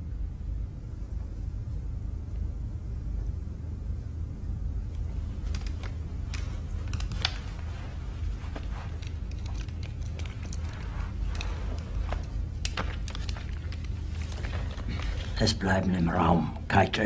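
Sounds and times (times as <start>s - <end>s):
low room tone rumble: 0.0s - 17.0s
faint clicks and rustles: 4.5s - 16.0s.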